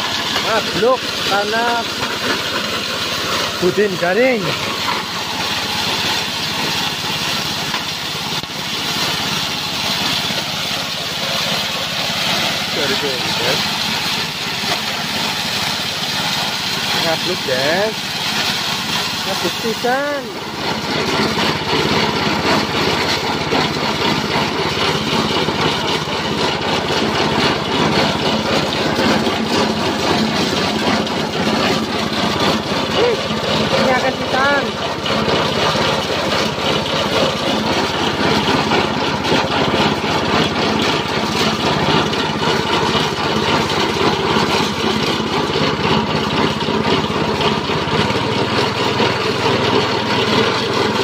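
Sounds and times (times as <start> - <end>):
grinder milling hiss: 0.0 - 20.6
small gasoline engine running: 0.0 - 51.0
husk milling crackle: 0.1 - 45.8.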